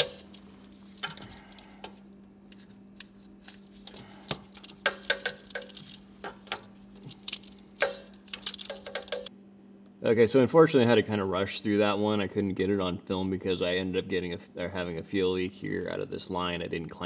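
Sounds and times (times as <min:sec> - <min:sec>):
steady low hum: 0:00.0 - 0:17.0
metallic clicks of hand tools: 0:04.3 - 0:09.3.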